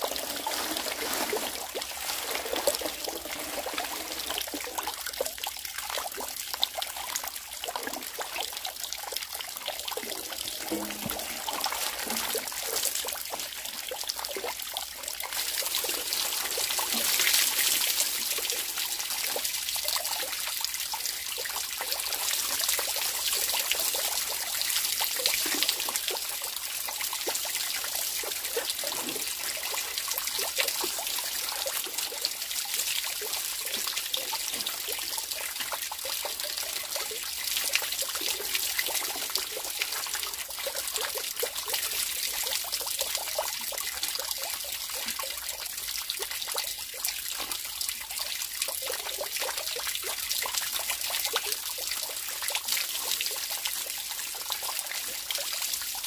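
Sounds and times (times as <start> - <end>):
splashes of washing greens: 0.0 - 4.8, 9.9 - 14.4
water running from a spout: 0.0 - 56.0
water trickling onto ground: 0.0 - 56.0.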